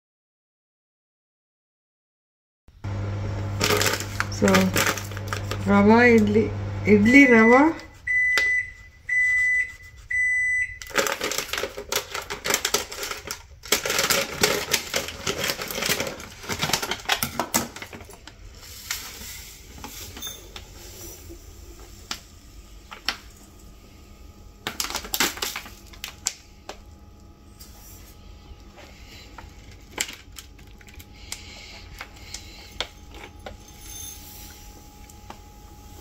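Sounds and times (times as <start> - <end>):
grains poured into steel tumbler: 3.6 - 5.6
plastic packet crinkling: 3.6 - 5.6, 10.8 - 19.2, 24.6 - 26.9, 29.0 - 33.8.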